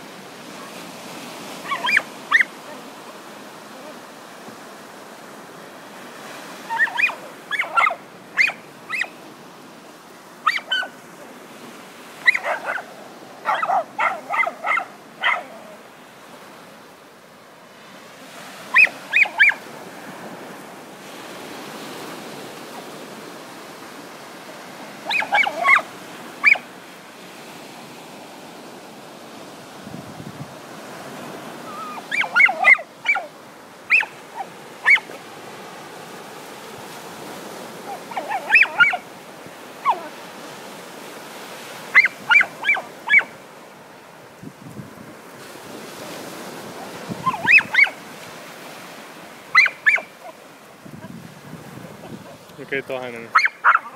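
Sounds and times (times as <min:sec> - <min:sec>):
surf washing: 0:00.0 - 0:53.9
dogs yipping and barking: 0:01.6 - 0:02.9, 0:06.6 - 0:09.2, 0:10.4 - 0:11.0, 0:12.2 - 0:15.9, 0:18.6 - 0:19.7, 0:25.0 - 0:26.7, 0:31.6 - 0:35.2, 0:37.6 - 0:40.3, 0:41.8 - 0:43.5, 0:46.5 - 0:48.1, 0:49.4 - 0:50.5, 0:53.3 - 0:53.9.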